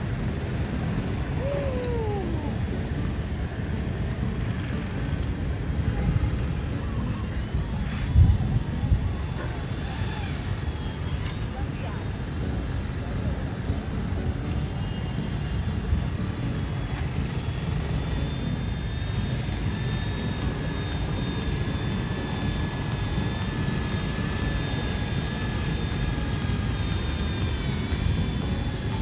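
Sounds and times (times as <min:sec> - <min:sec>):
toy helicopter rotor whine: 0:00.0 - 0:29.0
wind buffeting microphone: 0:07.7 - 0:10.7.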